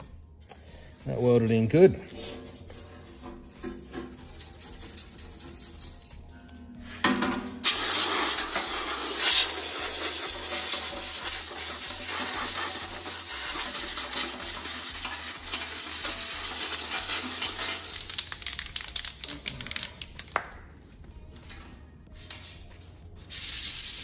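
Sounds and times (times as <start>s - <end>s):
metal bits rattling against steel: 3.6s - 6.3s, 15.5s - 20.3s
compressed air hissing: 7.6s - 18.0s.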